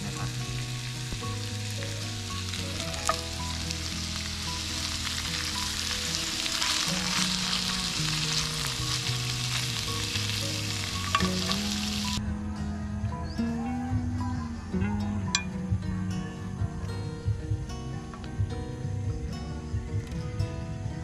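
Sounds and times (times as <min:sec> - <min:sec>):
ribs sizzling in a frying pan: 0:00.0 - 0:12.2
background music: 0:00.0 - 0:21.0.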